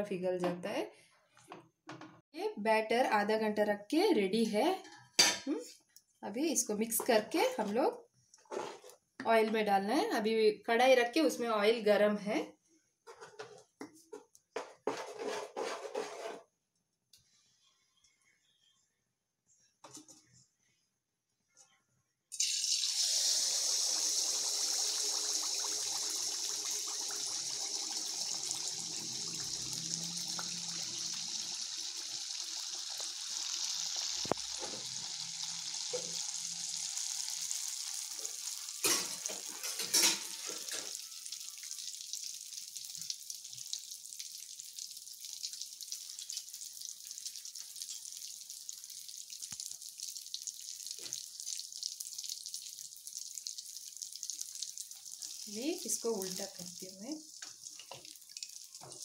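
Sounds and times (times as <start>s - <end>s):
batter sizzling in hot oil: 22.4s - 59.0s.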